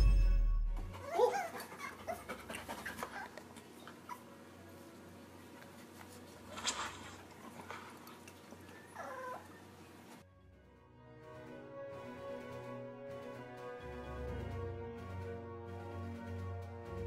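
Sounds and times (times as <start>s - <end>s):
background music: 0.0s - 1.4s, 10.3s - 17.0s.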